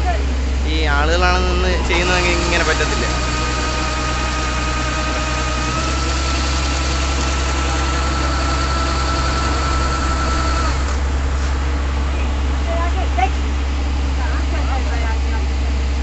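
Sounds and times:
auger whine: 0.0s - 16.0s
combine harvester engine running: 0.0s - 16.0s.

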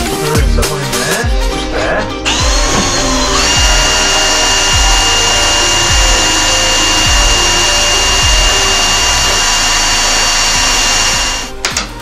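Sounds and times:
background music with bass beat: 0.0s - 12.0s
power drill whining: 2.2s - 11.6s.

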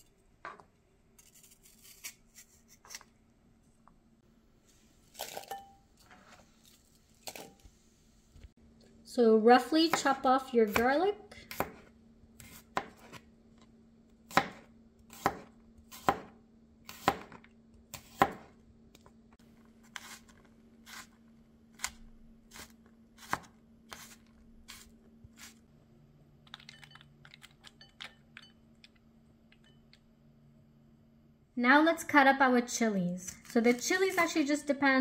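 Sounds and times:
knife chopping on cutting board: 11.5s - 13.2s, 14.3s - 18.5s.

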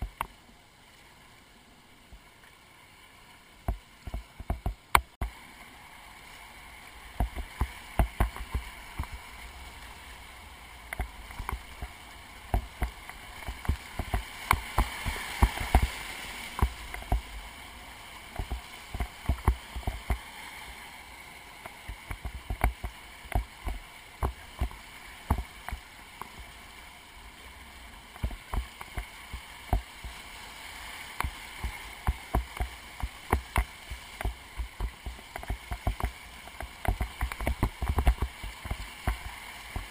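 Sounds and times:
water and paddle knocking boat: 3.6s - 5.4s, 7.1s - 10.0s, 10.8s - 17.5s, 18.2s - 20.4s, 21.6s - 26.5s, 28.0s - 30.2s, 31.0s - 39.9s
whitewater rushing: 4.1s - 39.9s.

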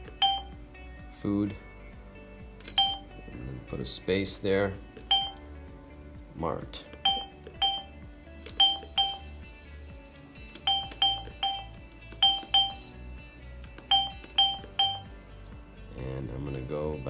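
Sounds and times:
keypad beeps: 0.1s - 0.6s, 2.6s - 3.1s, 5.0s - 5.4s, 7.0s - 9.3s, 10.6s - 13.0s, 13.8s - 15.2s.

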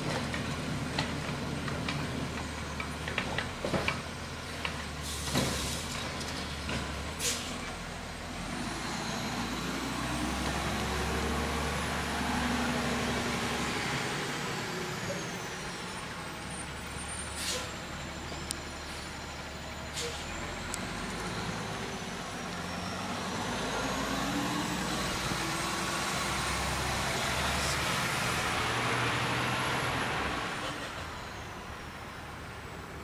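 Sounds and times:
garbage truck diesel engine: 0.0s - 33.0s
air brake hisses: 7.2s - 7.6s, 17.2s - 17.8s, 19.9s - 20.3s.

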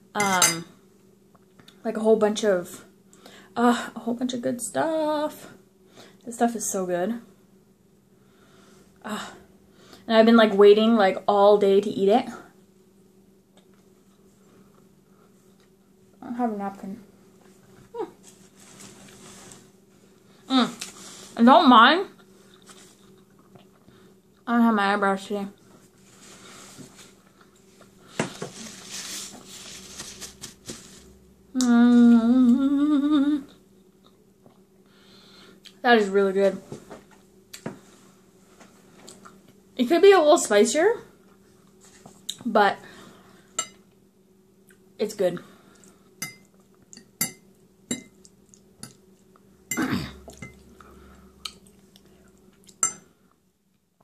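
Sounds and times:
woman chewing food: 22.2s - 24.1s, 48.2s - 49.5s
woman moaning: 31.6s - 33.5s.

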